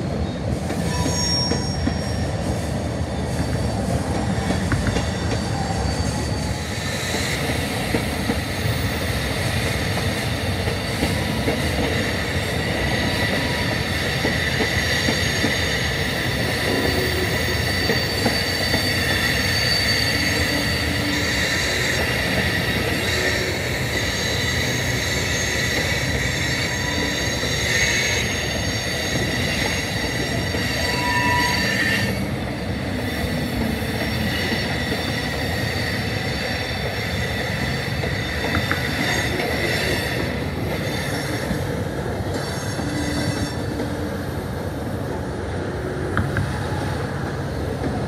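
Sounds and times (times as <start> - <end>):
freight train rolling past: 0.0 - 48.0
high-pitched wheel squeal: 0.8 - 2.4, 3.4 - 7.9, 12.8 - 32.4, 33.0 - 43.8.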